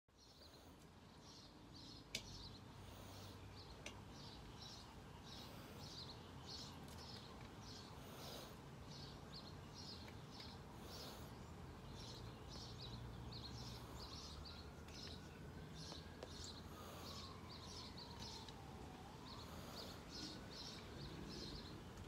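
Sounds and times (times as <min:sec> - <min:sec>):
faint outdoor ambience: 0:00.1 - 0:22.0.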